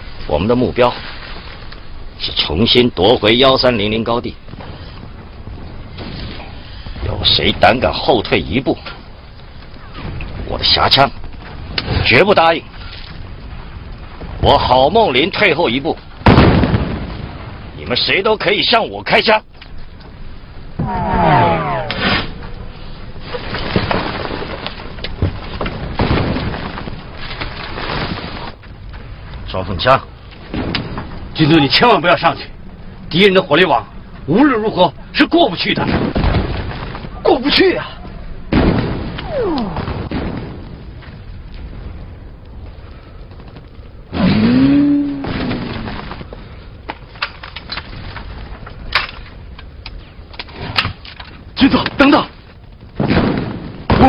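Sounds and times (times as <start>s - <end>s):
rough continuous battle noise: 0.0s - 54.0s
sharp gunfire cracks: 16.2s - 17.2s.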